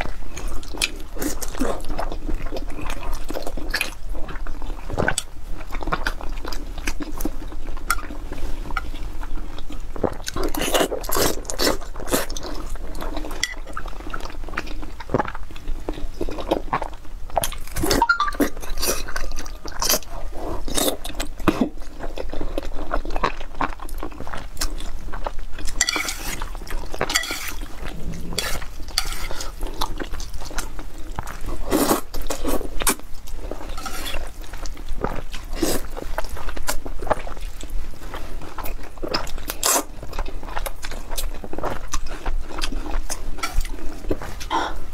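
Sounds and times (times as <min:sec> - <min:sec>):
wet chewing: 0:00.3 - 0:44.8
chopsticks clinking on metal bowl: 0:25.8 - 0:26.4, 0:27.1 - 0:27.6, 0:33.8 - 0:34.2.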